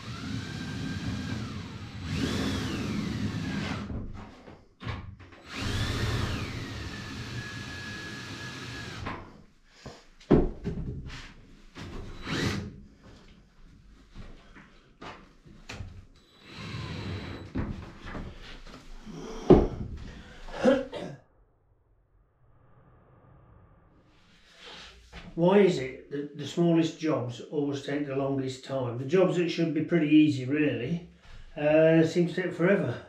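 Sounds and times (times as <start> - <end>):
drill with hole saw cutting: 0.0 - 3.9, 5.4 - 9.3, 11.9 - 12.8, 16.2 - 17.6.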